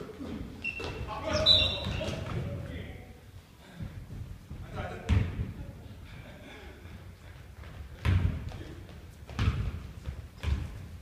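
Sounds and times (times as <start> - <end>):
basketball bouncing on wood floor: 7.6 - 8.7, 9.3 - 10.9.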